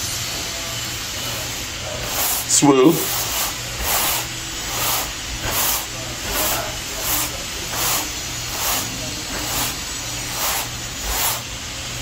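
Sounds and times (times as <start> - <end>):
hissing in regular puffs: 1.0 - 11.7.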